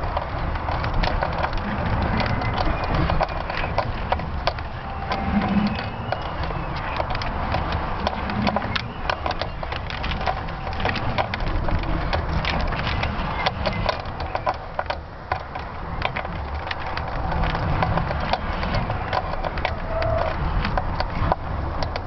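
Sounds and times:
sharp crackles and clicks: 0:00.0 - 0:22.0
wind buffeting microphone: 0:00.0 - 0:22.0.

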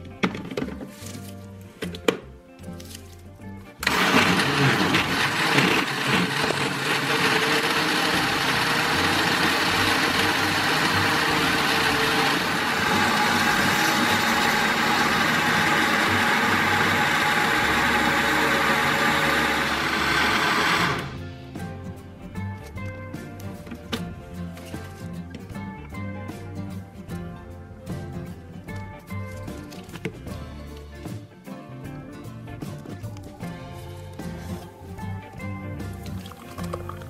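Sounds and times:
background music: 0:00.0 - 0:37.0
blender running at high speed: 0:03.8 - 0:21.2.

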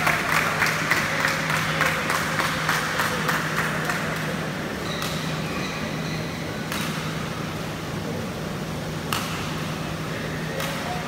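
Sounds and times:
rhythmic clapping: 0:00.0 - 0:05.2
steady low hum: 0:00.0 - 0:11.0.

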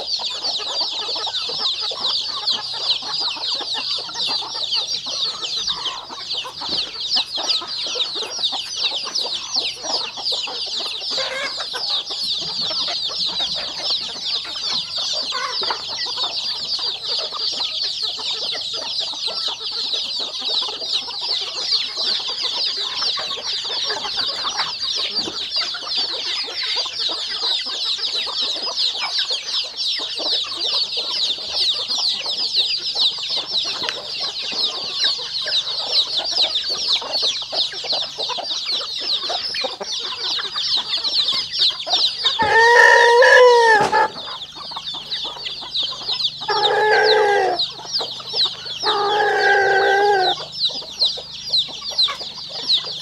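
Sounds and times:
chicks peeping: 0:00.0 - 0:53.0
drawn-out chicken calls: 0:00.0 - 0:53.0
rooster crowing: 0:42.3 - 0:44.4, 0:46.5 - 0:47.7, 0:48.7 - 0:50.5.

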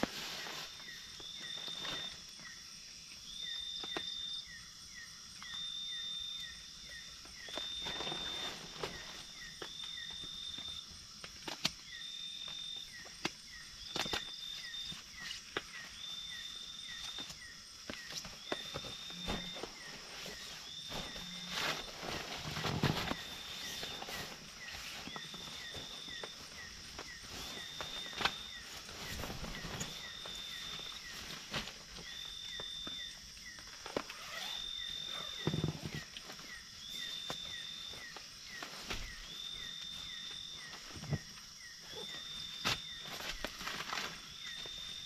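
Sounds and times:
insect chirps: 0:00.0 - 0:45.0
insects buzzing: 0:00.0 - 0:45.0
knocks and thumps on tent floor: 0:17.9 - 0:32.1, 0:35.4 - 0:36.4.

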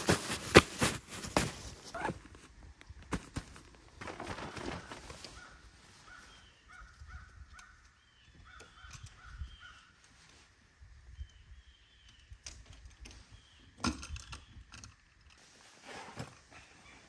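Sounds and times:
nylon fabric rustling: 0:00.0 - 0:02.4.

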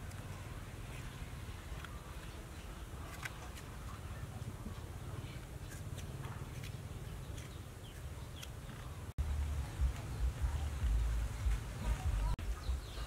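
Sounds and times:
steady low rumble: 0:08.8 - 0:12.9.

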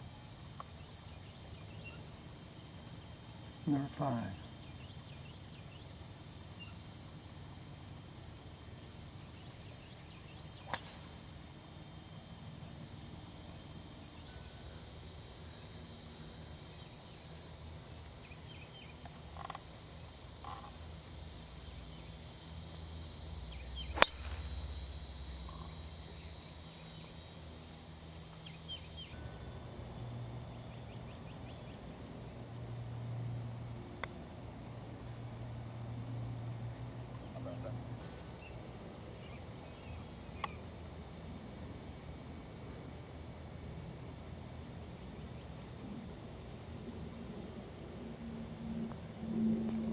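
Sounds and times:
faint outdoor background: 0:00.0 - 0:49.9
golf club striking ball: 0:10.6 - 0:11.1, 0:23.8 - 0:24.6.

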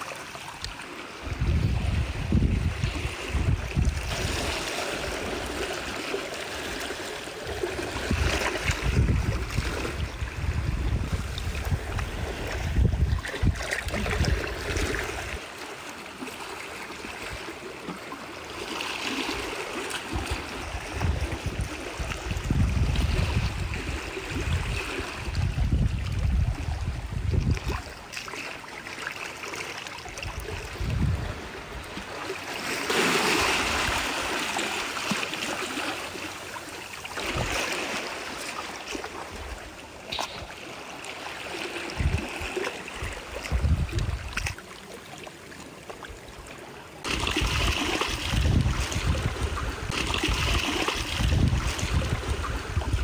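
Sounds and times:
seawater lapping at shoreline: 0:00.0 - 0:53.0
wind rumble on microphone: 0:01.2 - 0:05.6, 0:07.5 - 0:15.4, 0:20.1 - 0:28.0, 0:30.1 - 0:32.1, 0:37.2 - 0:37.7, 0:41.8 - 0:44.6, 0:47.1 - 0:53.0.

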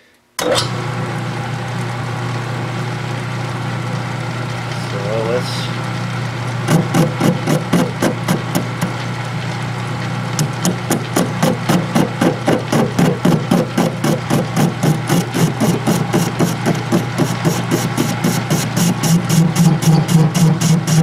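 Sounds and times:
lathe motor hum: 0:00.9 - 0:21.0
lathe tool knocking: 0:06.7 - 0:09.0, 0:10.4 - 0:21.0.

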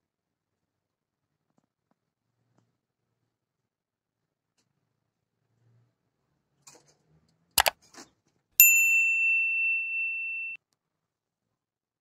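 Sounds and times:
notification bell ding: 0:08.6 - 0:10.6.

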